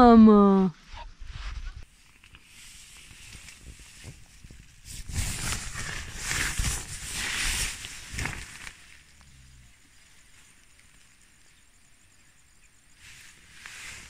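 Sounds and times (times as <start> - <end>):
tent fabric rustling and scraping: 0.8 - 9.2, 12.9 - 14.0
low hiss: 1.3 - 14.0.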